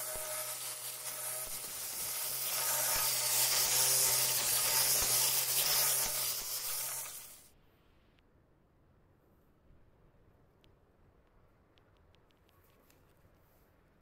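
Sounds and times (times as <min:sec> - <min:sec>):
blade spinning through grass: 0:00.0 - 0:07.4
motor hum: 0:00.0 - 0:07.4.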